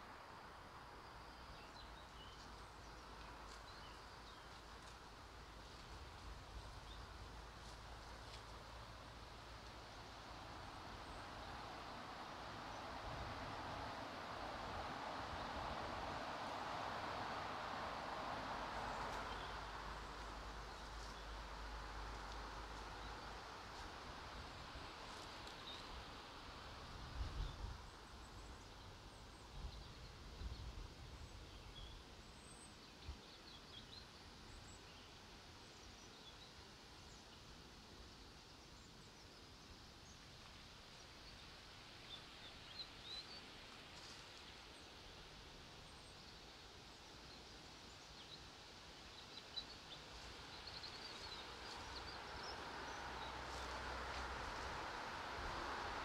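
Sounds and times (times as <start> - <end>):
traffic noise: 0.0 - 32.9, 33.6 - 56.0
birds chirping: 47.3 - 53.8.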